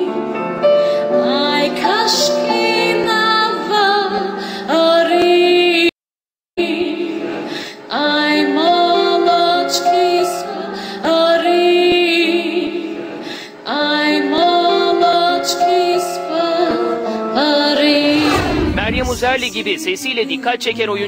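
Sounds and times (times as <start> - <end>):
low accompanying tone: 18.0 - 19.9.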